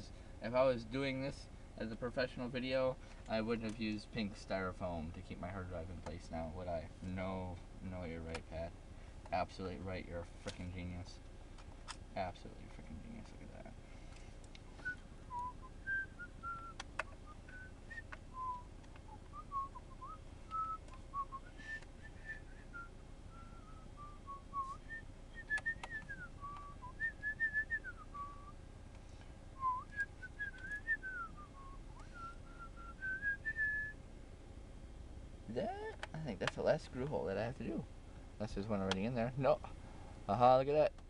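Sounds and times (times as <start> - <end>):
person whistling a tune: 14.8 - 28.5, 29.6 - 34.0.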